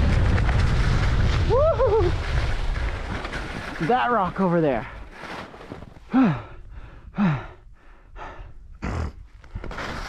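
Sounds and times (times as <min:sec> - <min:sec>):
man breathing hard: 0:06.0 - 0:09.6.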